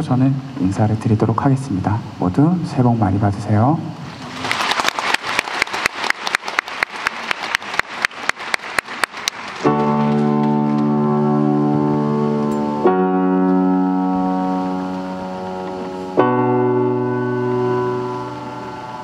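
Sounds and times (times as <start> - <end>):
audience applause: 4.2 - 10.2
keyboard pop ballad chord: 9.7 - 19.0.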